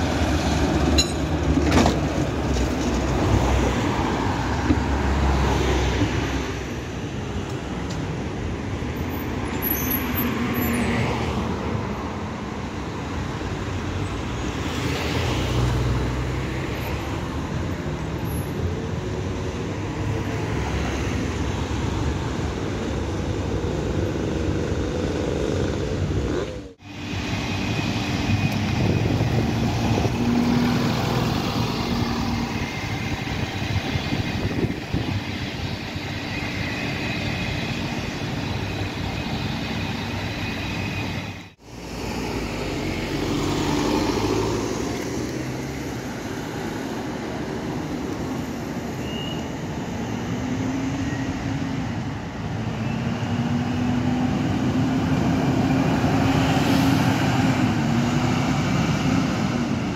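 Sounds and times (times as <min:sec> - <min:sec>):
street traffic: 0:00.0 - 0:59.9
bus engine rising in pitch: 0:23.1 - 0:59.9.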